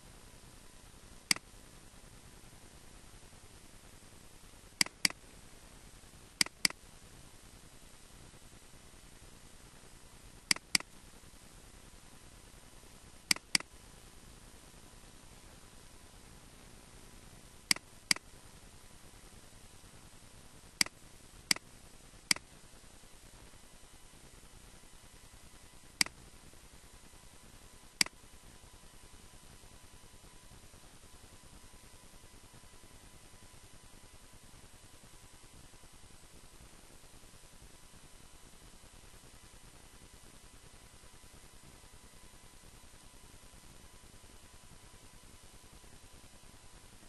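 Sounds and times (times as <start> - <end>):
faint steady hiss: 0.0 - 47.0
computer mouse button clicking: 4.8 - 5.2, 6.4 - 6.8, 10.5 - 10.9, 13.3 - 13.7, 17.7 - 18.2, 20.8 - 21.6.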